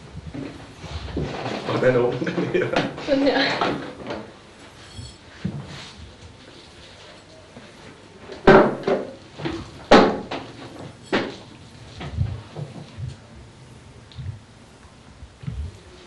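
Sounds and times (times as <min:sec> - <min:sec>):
handling knocks and clunks: 0:08.4 - 0:13.2
soft rustles and taps: 0:09.4 - 0:13.3, 0:14.1 - 0:15.9.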